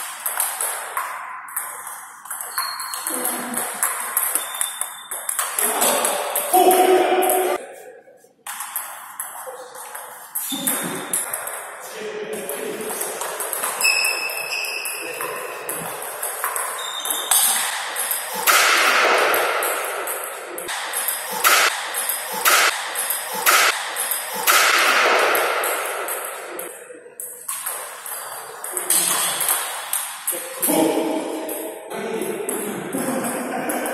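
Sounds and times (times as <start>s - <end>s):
shoe squeaks on floor: 2.4s - 3.2s, 4.2s - 5.4s, 10.4s - 11.1s, 13.8s - 15.4s, 16.6s - 17.7s.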